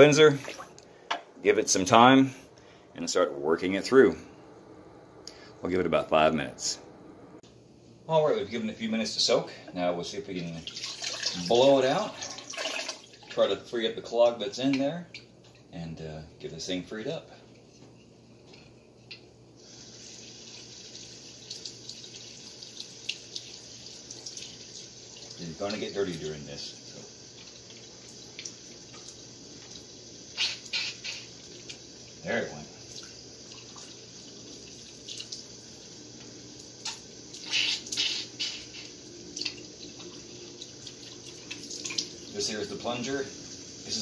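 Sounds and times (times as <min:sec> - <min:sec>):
faucet water running into sink: 0:00.0 - 0:00.8, 0:10.4 - 0:13.6, 0:19.6 - 0:44.0.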